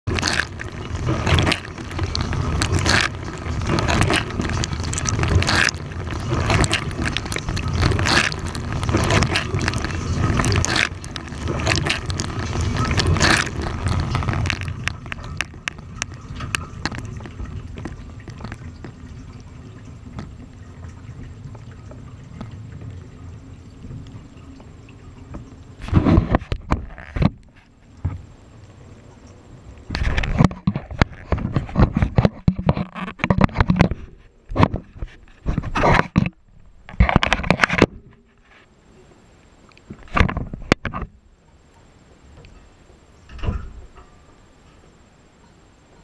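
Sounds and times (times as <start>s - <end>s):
low machine rumble: 0.0s - 26.4s
small ticks: 0.1s - 23.1s, 39.4s - 46.0s
water dripping: 0.1s - 25.8s
water jets spraying dishes: 0.1s - 25.8s.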